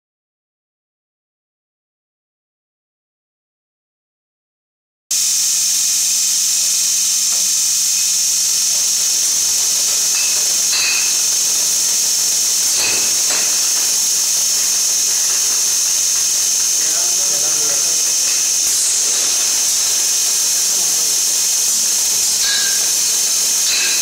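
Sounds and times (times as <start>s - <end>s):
steady hiss of air: 5.1s - 24.0s
low machine hum: 5.2s - 24.0s.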